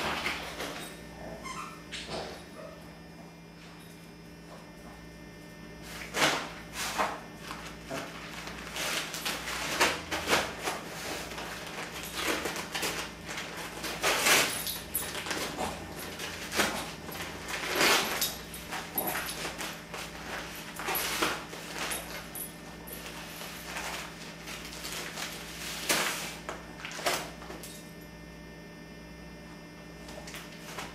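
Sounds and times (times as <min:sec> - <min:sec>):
wrapping paper crinkling: 0:07.4 - 0:22.4, 0:23.0 - 0:27.4.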